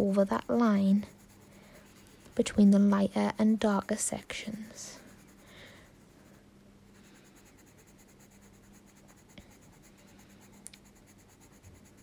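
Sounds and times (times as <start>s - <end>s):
low steady hum: 0.0s - 12.0s
pencil scratching on paper: 0.0s - 12.0s
small ticks: 10.6s - 10.9s.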